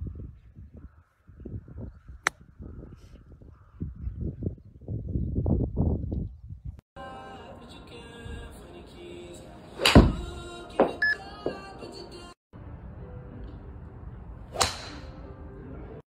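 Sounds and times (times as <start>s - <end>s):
quiet background music: 7.0s - 16.0s
golf club striking ball: 9.8s - 10.2s, 14.6s - 15.1s.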